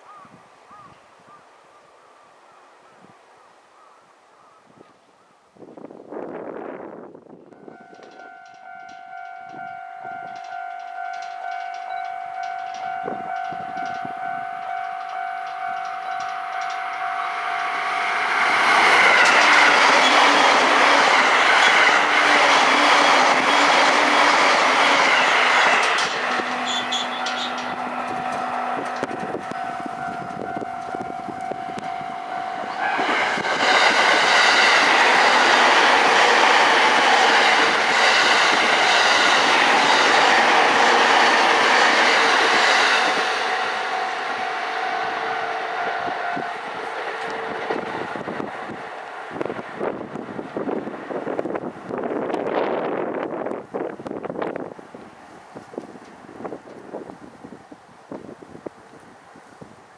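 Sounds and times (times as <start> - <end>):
electric trains passing: 5.7 - 59.9
pulsing ringing tone: 7.6 - 18.5, 25.0 - 33.4, 42.7 - 46.9
wheels clattering over rail joints: 7.8 - 45.6.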